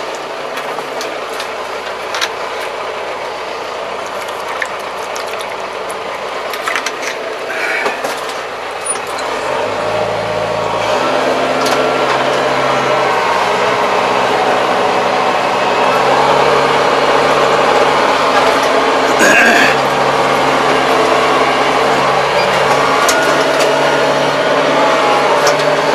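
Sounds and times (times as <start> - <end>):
tractor engine running: 0.0 - 25.9
clicks and rattles: 4.0 - 7.2.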